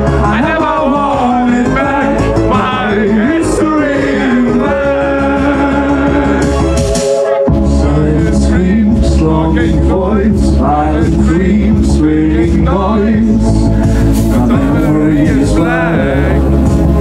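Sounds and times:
man singing: 0.0s - 17.0s
synthwave music with drums: 0.0s - 17.0s.

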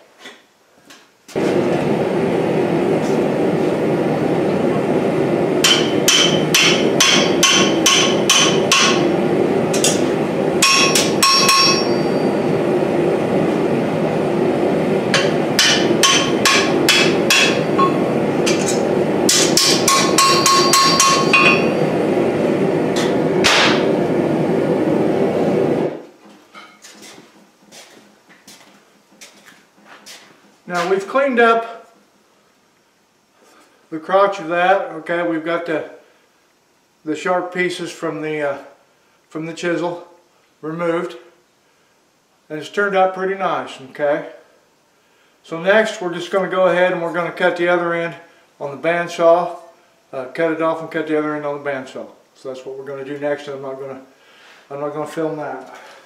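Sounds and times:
hammer striking steel on anvil: 5.6s - 9.1s, 9.8s - 12.3s, 15.1s - 21.9s, 23.0s - 23.9s.

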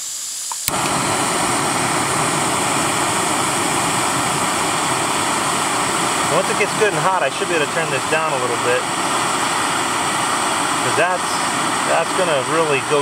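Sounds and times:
gas hissing: 0.0s - 13.0s
gas burner flame rushing: 0.2s - 13.0s
stove igniter click: 0.5s - 1.0s.

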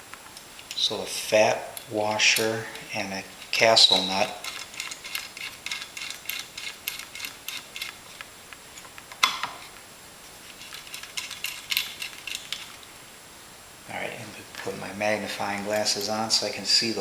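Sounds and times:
small metal clicks: 3.4s - 9.5s, 10.6s - 12.8s.

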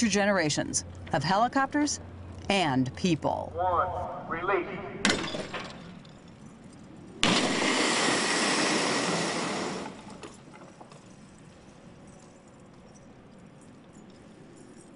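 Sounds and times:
loud crash noise: 7.2s - 10.1s
helicopter airframe crashing: 7.2s - 11.0s.

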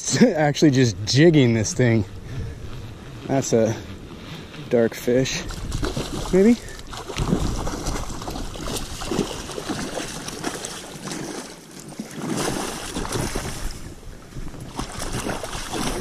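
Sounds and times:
fish splashing and thrashing in water: 5.3s - 16.0s.

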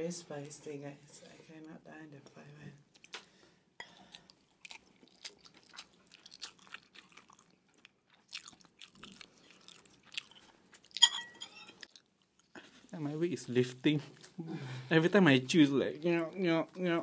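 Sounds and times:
chewing and biting food: 4.0s - 11.1s, 11.7s - 12.6s.

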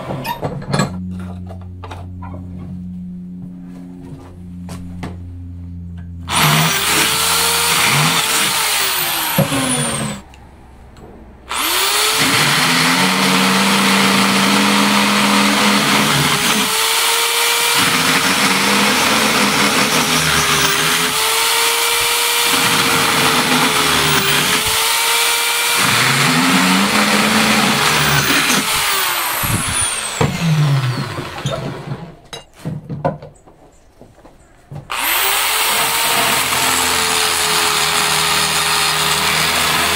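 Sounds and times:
electric drill boring metal: 6.3s - 10.2s, 11.5s - 32.1s, 34.9s - 39.9s
drill clicks: 6.3s - 10.4s, 11.5s - 31.9s, 34.9s - 39.9s.

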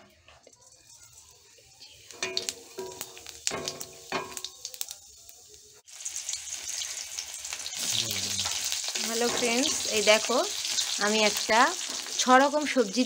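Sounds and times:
seeds frying in oil sizzling: 0.3s - 13.0s
metal spatula scraping pan: 7.9s - 10.0s.

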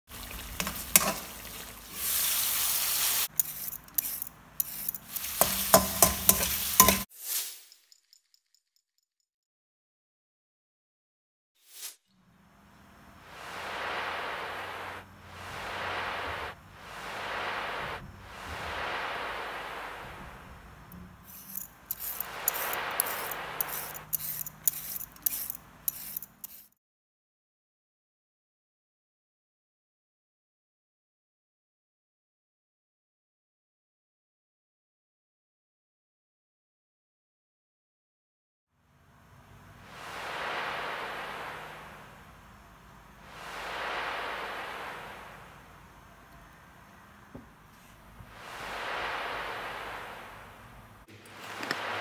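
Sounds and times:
chicken sizzling in wok: 0.1s - 8.0s, 21.2s - 26.7s
soft hiss: 0.1s - 8.0s, 11.7s - 26.7s, 39.4s - 52.0s
food frying sizzle: 0.1s - 8.1s, 21.3s - 26.7s
metal spatula scraping pan: 0.2s - 7.1s, 21.2s - 26.7s
peeler scraping carrot: 0.6s - 2.0s, 3.3s - 7.0s, 21.2s - 26.8s.

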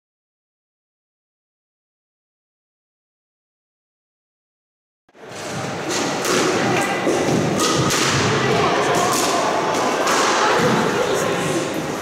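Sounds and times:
squash ball hitting rackets and walls: 5.2s - 11.0s.

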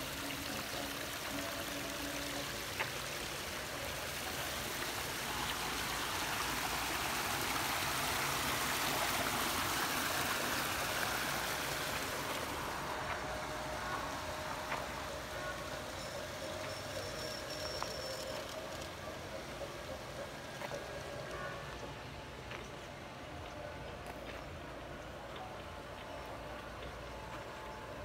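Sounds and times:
water running down rock cascade: 0.0s - 21.8s.

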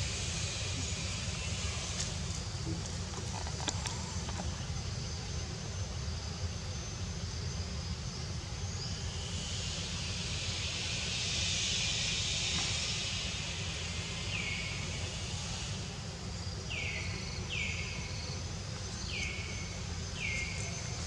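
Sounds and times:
high hiss: 8.4s - 21.0s.

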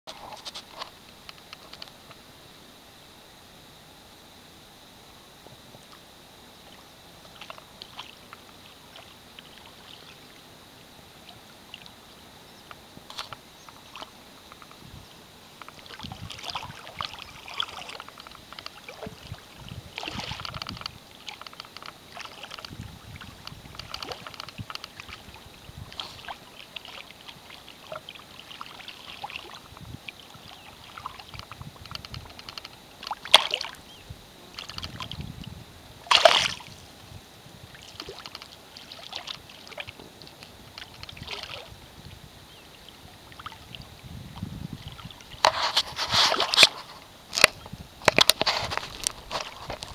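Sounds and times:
fish splashing in water: 15.7s - 31.6s, 32.2s - 33.8s, 36.0s - 36.8s, 37.8s - 40.0s, 40.8s - 41.7s.

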